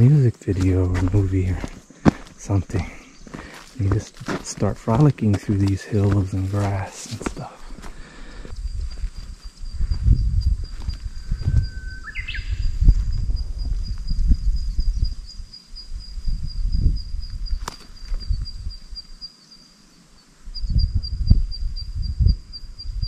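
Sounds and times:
wind buffeting microphone: 0.0 - 19.0, 20.5 - 23.0
high-pitched pulsing insect trill: 8.5 - 23.0.

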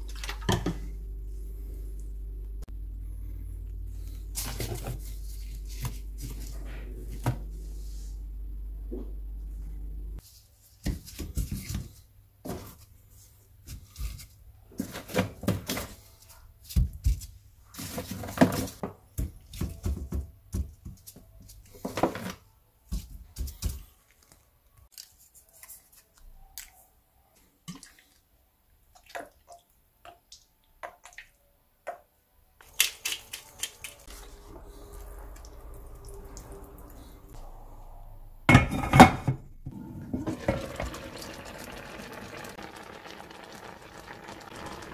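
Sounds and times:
onion and garlic frying: 39.7 - 44.9.

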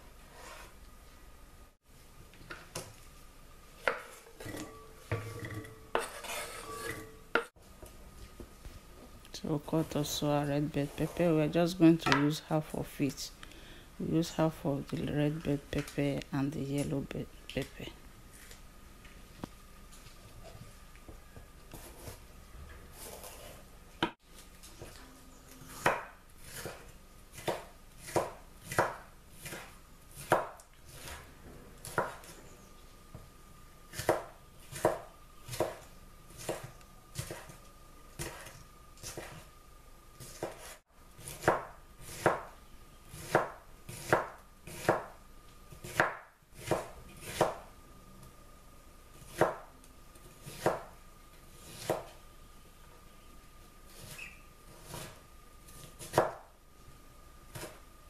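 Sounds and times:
knife chopping on wooden board: 3.8 - 7.5, 25.8 - 32.4, 33.9 - 37.6, 38.2 - 39.4, 40.2 - 42.5, 43.1 - 45.2, 45.8 - 47.7, 49.2 - 49.7, 50.4 - 50.9, 51.7 - 52.2, 55.8 - 56.5.

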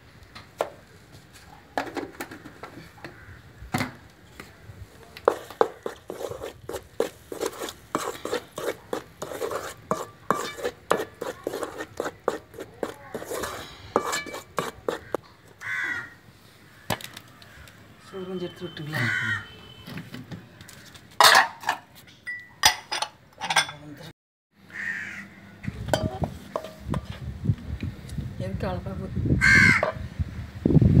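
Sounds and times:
wooden spoon scraping metal bowl: 5.3 - 15.2, 26.0 - 27.2.

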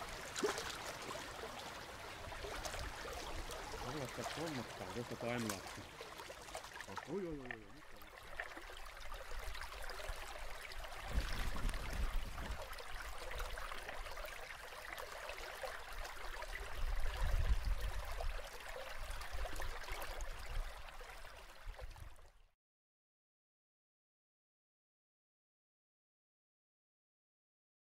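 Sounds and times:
brook flowing over stones: 0.0 - 22.4.

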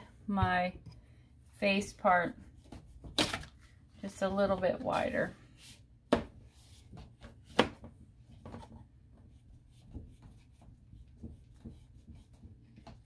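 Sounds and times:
pencil drawing on paper: 9.2 - 12.8.

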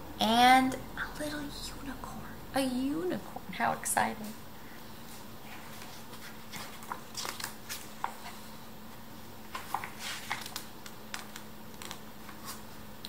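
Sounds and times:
faint steady hum: 0.0 - 13.0
book pages turning: 5.5 - 8.4, 9.5 - 12.8.

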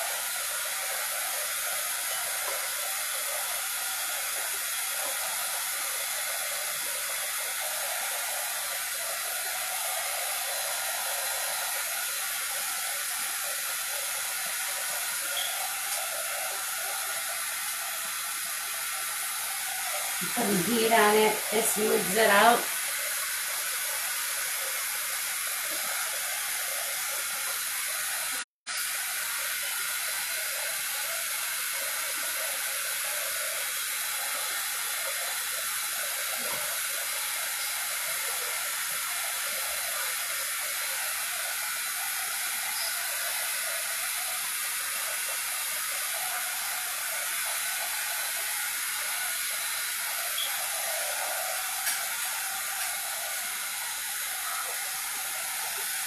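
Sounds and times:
heat gun blowing hot air: 0.0 - 31.9, 40.4 - 56.0.

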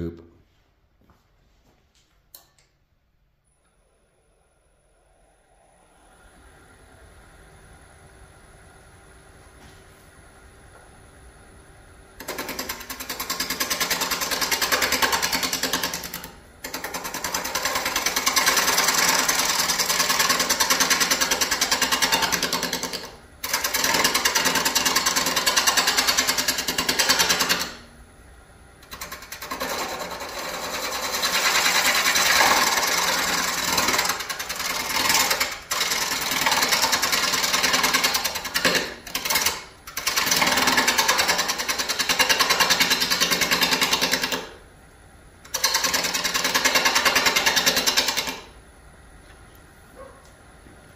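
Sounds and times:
lathe gouge chattering on wood: 12.2 - 27.8, 28.8 - 44.5, 45.5 - 48.5.

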